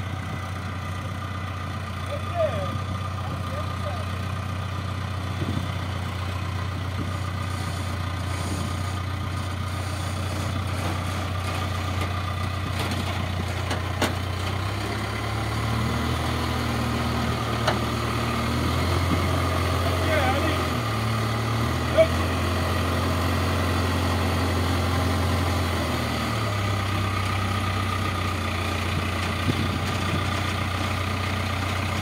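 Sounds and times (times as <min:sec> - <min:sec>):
diesel engine running: 0:00.0 - 0:32.0.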